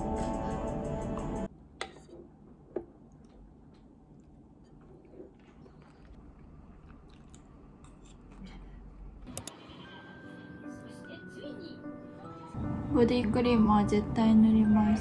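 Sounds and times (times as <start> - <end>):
faint chewing: 3.0 - 9.1.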